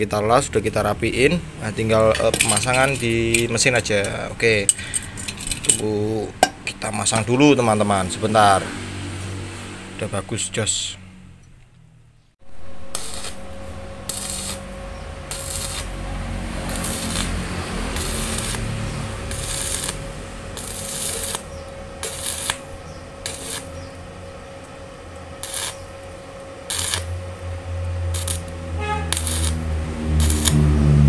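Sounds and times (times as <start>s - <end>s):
welding arc crackling hiss: 12.5s - 24.0s, 25.1s - 30.7s.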